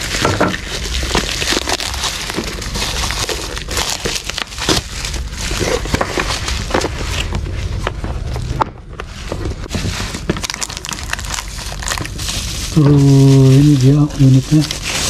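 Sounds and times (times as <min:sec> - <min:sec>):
bubble wrap crinkling and tearing: 0:00.0 - 0:15.0.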